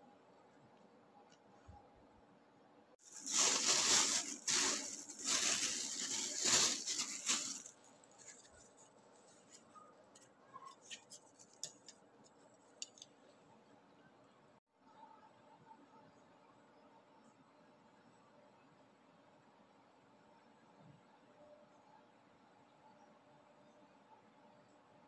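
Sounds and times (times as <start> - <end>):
paper packaging crinkling and tearing: 3.0 - 9.9, 10.6 - 12.0.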